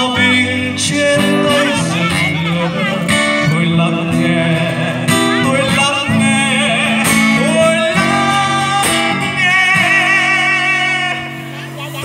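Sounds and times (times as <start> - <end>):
man singing with vibrato: 0.0 - 12.0
strummed acoustic guitar: 0.0 - 12.0.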